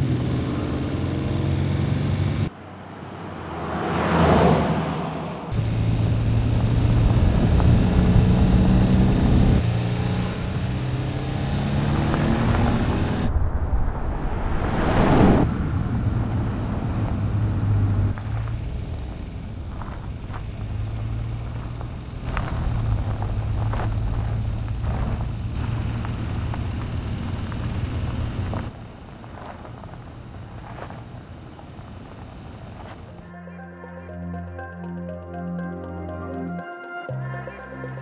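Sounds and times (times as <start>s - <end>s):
car engine running: 5.5s - 13.3s, 15.9s - 33.2s.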